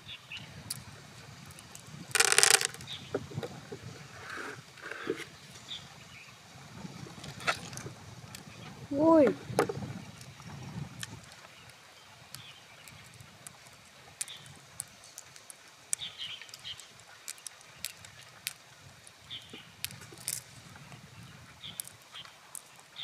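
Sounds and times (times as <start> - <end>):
pearls clicking together: 1.5 - 2.9, 14.2 - 19.2, 19.8 - 20.5, 21.8 - 22.9.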